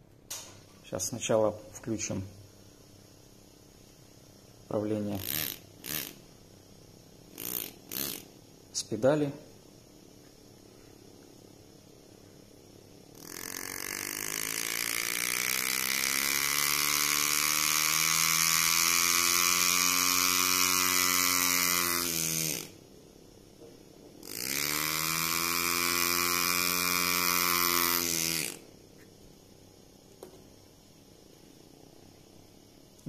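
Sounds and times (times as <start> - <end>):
pneumatic engraving tool hammering: 5.1 - 6.2, 7.3 - 8.3, 13.1 - 22.8, 24.2 - 28.6.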